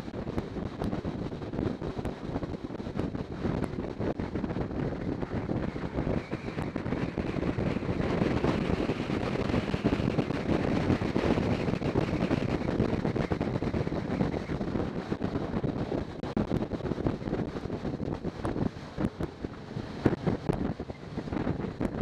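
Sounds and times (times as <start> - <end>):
wind rushing over microphone: 0.0 - 22.0.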